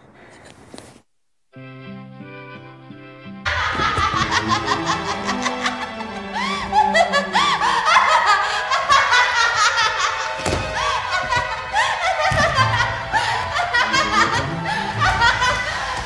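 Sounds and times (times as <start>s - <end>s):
music: 1.5s - 16.0s
high-pitched laughter: 3.5s - 16.0s.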